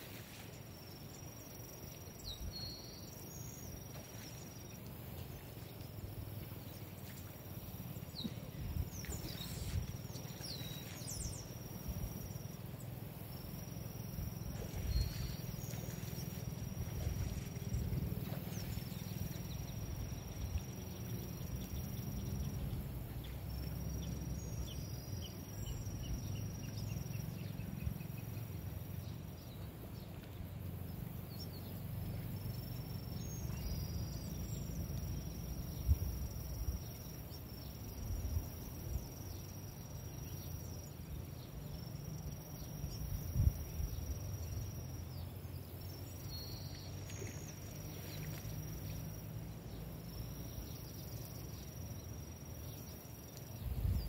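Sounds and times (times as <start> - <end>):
high-pitched insect trill: 0.0 - 29.5
wind rumble on microphone: 7.9 - 12.4, 14.1 - 39.4, 41.0 - 45.3, 53.5 - 54.0.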